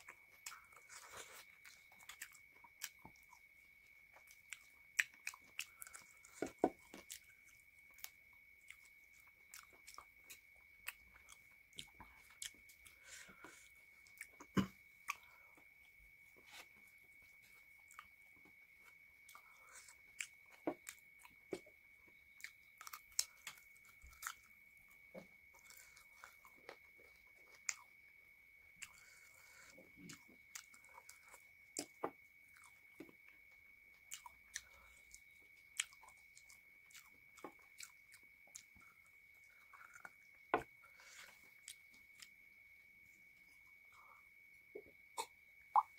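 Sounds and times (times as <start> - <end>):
chewing and smacking: 0.0 - 45.9
faint high-pitched whine: 0.0 - 45.9.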